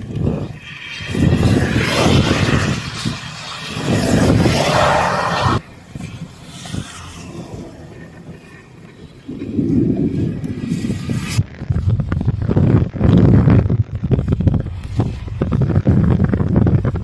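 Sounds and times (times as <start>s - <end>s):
tyres swishing through water: 0.0s - 11.3s
rain hissing on wet asphalt: 0.0s - 13.1s, 13.7s - 16.6s.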